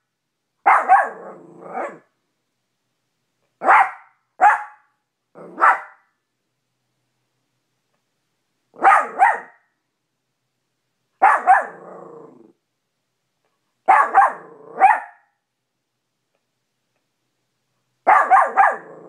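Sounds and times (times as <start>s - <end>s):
small dog barking: 0.6s - 2.1s, 3.6s - 6.1s, 8.8s - 9.7s, 11.2s - 12.2s, 13.8s - 15.3s, 18.0s - 19.0s.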